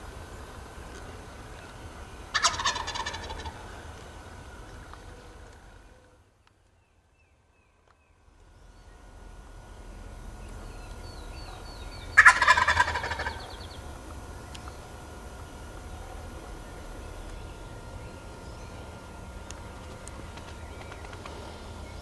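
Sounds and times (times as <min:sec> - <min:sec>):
turkey gobbling: 0:02.3 - 0:03.8, 0:12.2 - 0:13.6.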